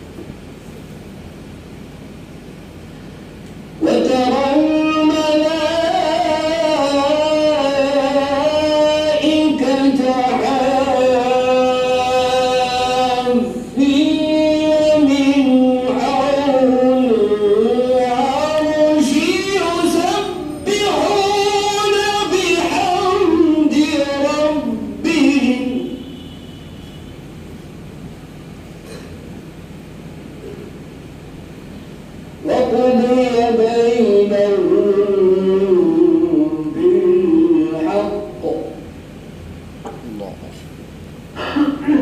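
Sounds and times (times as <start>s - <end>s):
man chanting melodically: 3.8s - 26.0s, 32.4s - 38.9s.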